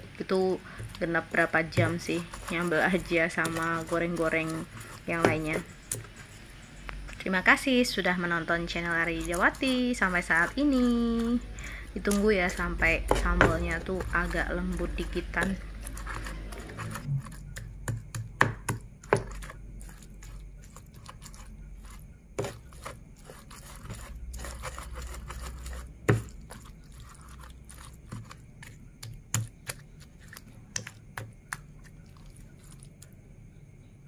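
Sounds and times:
pestle wet squishing and scraping: 0.6s - 33.2s
stone knocking on mortar: 17.8s - 19.4s.

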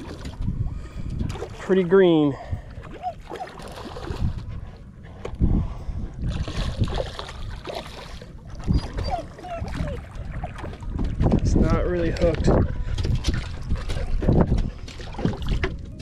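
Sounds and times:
fish splashing in water: 2.8s - 4.4s, 6.2s - 11.2s.

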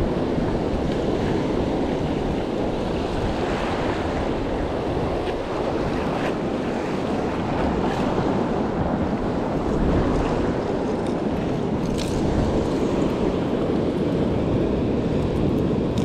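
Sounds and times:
sea washing: 0.0s - 16.0s
wind on microphone: 0.0s - 16.0s.

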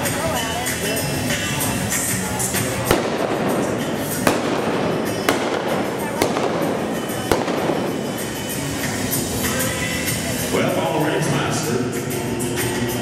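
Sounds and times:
rifle shots: 2.9s - 8.9s.

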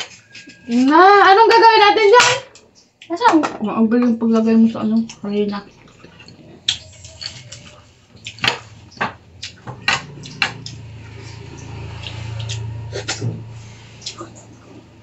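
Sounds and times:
low hum: 8.8s - 15.0s.

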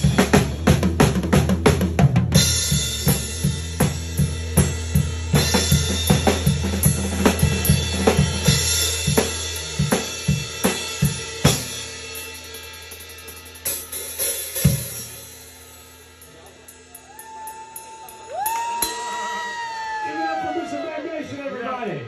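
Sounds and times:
drum kit playing: 0.0s - 19.4s.

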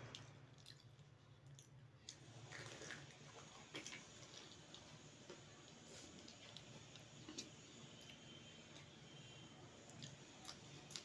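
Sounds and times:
crisp snack crunching and chewing: 0.0s - 4.8s.

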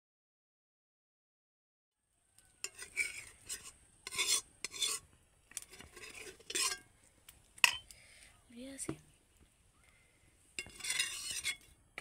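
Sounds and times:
spoon scraping in a pot: 2.6s - 6.9s, 10.6s - 11.8s.

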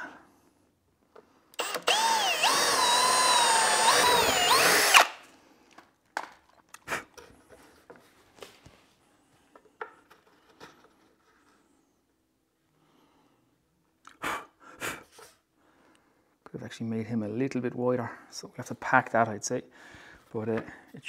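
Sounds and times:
cordless drill boring into wood: 1.6s - 5.2s.

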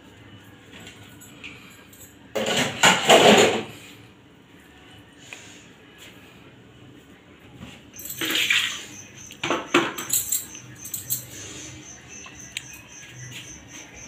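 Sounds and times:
metal utensils clattering: 2.3s - 3.8s, 8.0s - 11.6s
high pulsing chirp: 8.0s - 14.0s.

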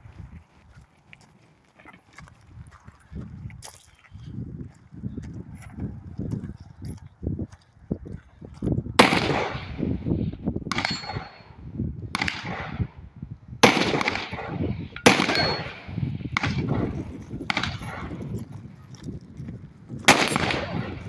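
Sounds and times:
handgun shots: 9.0s - 9.8s, 10.7s - 11.5s, 13.6s - 18.2s, 20.1s - 21.0s.

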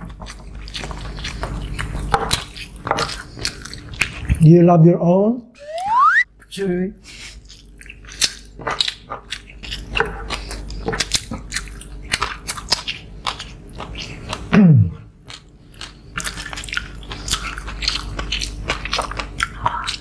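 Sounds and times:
people chewing and biting food: 0.0s - 4.4s, 7.1s - 20.0s
loud sound falling in pitch: 5.6s - 6.2s.

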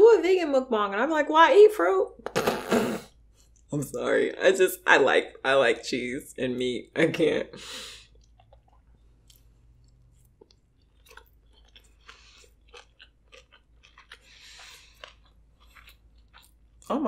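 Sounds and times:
close chewing with crunches: 8.1s - 17.0s.

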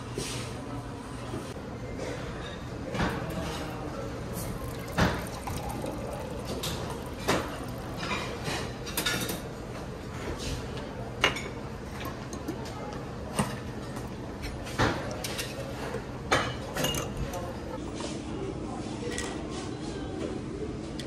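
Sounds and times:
room hum: 0.0s - 21.0s
glasses and tableware clinking: 4.4s - 9.6s, 14.6s - 17.7s.

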